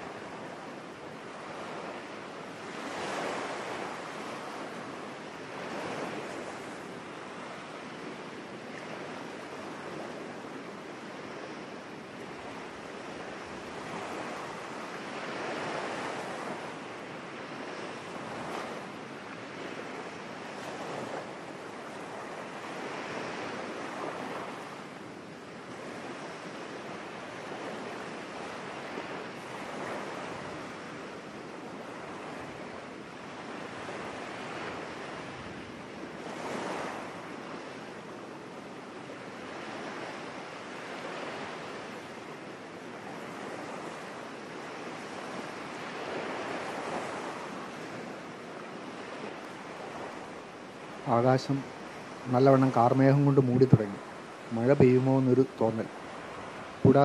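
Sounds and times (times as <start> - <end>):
surf breaking on beach: 38.8 - 57.0.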